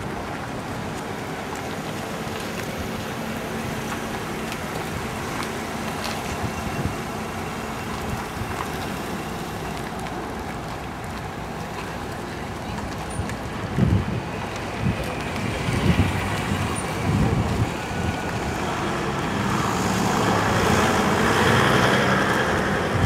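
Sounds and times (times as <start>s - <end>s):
motor vehicles passing: 0.0s - 23.0s
wind on microphone: 13.2s - 23.0s.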